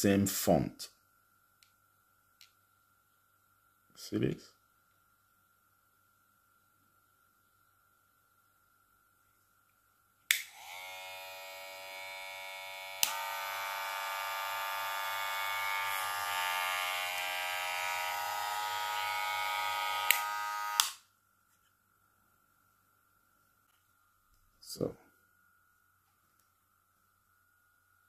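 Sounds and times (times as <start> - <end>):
hair clipper buzzing: 10.3 - 21.0.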